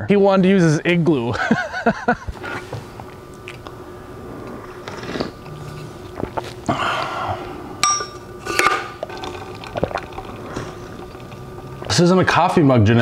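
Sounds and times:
steady low hum: 0:00.0 - 0:13.0
man sipping and breathing: 0:04.2 - 0:07.8, 0:08.4 - 0:11.9
metallic clink: 0:07.8 - 0:08.2.

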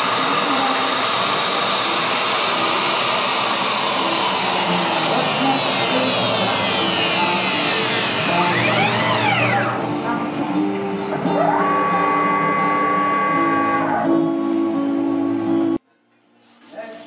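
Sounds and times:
router spindle carving wood: 0:00.0 - 0:10.1
dust collector running: 0:00.0 - 0:14.0
high whine: 0:00.0 - 0:15.8.

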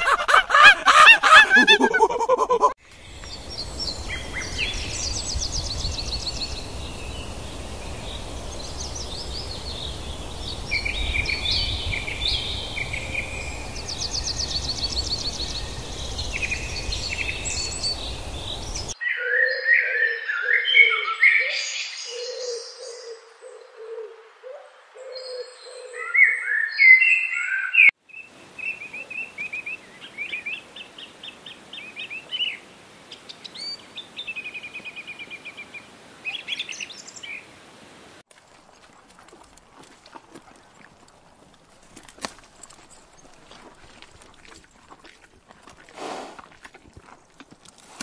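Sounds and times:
birds chirping and calling: 0:03.0 - 0:23.9.

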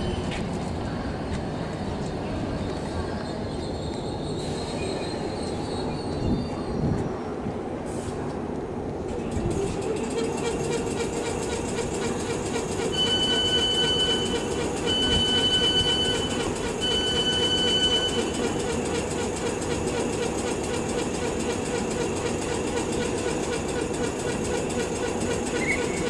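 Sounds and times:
electric train humming: 0:00.0 - 0:26.0
long electronic beeps: 0:12.8 - 0:18.6.

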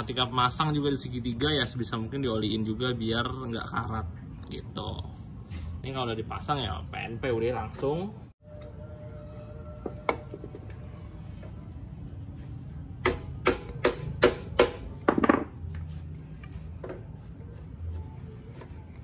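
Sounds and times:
sharp metal knocks: 0:13.0 - 0:15.5.

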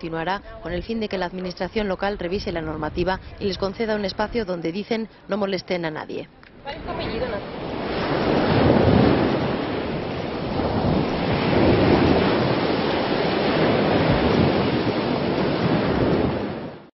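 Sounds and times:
waves washing on shore: 0:06.6 - 0:16.9.

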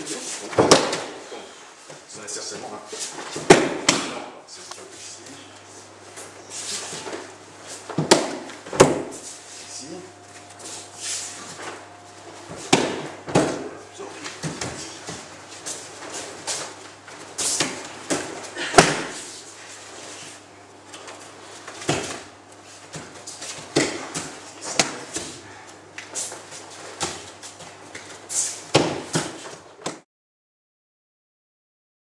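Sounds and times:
bodies thumping on mats: 0:00.5 - 0:01.5, 0:06.9 - 0:09.2, 0:11.5 - 0:19.3, 0:21.6 - 0:22.3, 0:22.9 - 0:25.3, 0:28.7 - 0:30.0.

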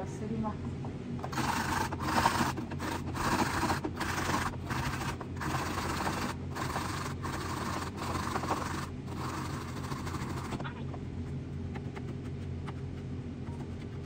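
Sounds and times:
gritty grinding by hand: 0:01.2 - 0:10.7.

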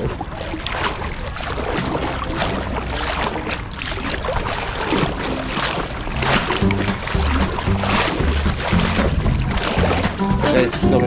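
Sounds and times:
seawater sloshing around legs: 0:00.0 - 0:11.0.

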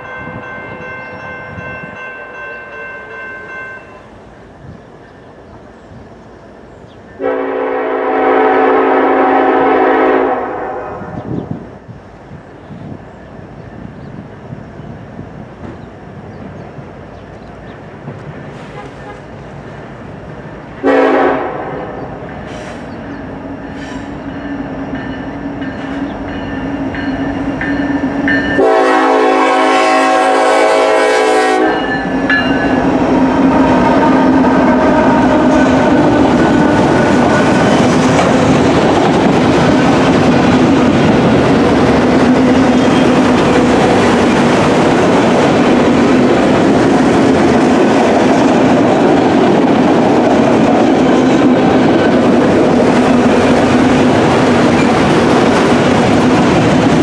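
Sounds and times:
diesel locomotive engine: 0:00.0 - 0:57.0
train horn chord: 0:07.2 - 0:11.3, 0:18.6 - 0:19.2, 0:20.8 - 0:22.2, 0:28.3 - 0:37.6
train wheels clickety-clack on rails: 0:11.0 - 0:57.0.

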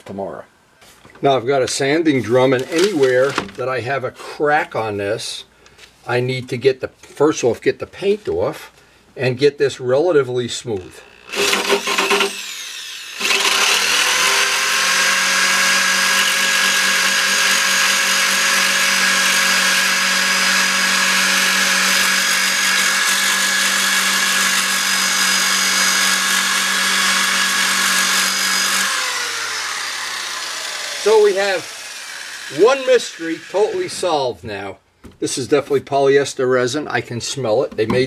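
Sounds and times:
rotary tool sanding with high whine: 0:11.0 - 0:34.2.

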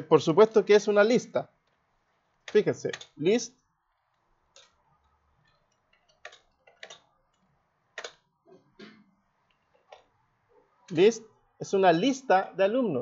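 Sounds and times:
computer keys typing: 0:02.4 - 0:03.4, 0:04.5 - 0:08.2.

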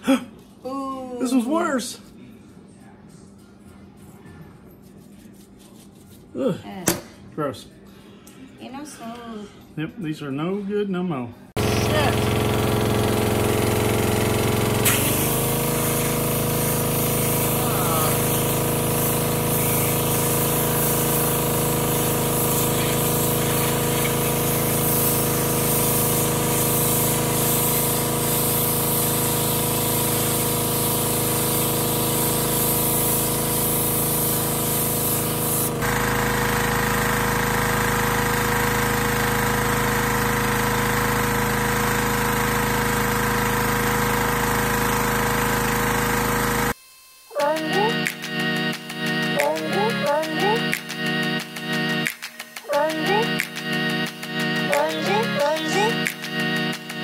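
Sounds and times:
pressure washer engine running: 0:11.6 - 0:46.8, 0:47.4 - 0:57.0
spray hissing against metal drum: 0:14.6 - 0:35.8.

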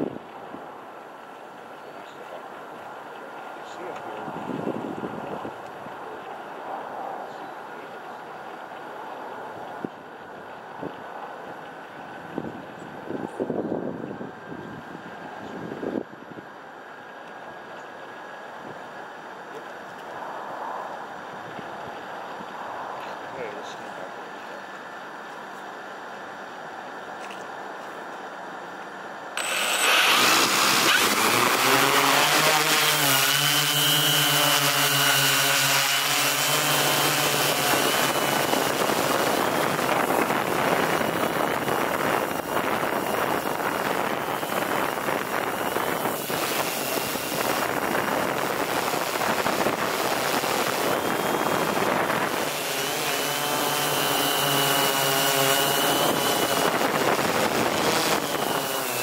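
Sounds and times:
high motor whine: 0:28.5 - 0:59.0
drone buzzing: 0:29.4 - 0:59.0.

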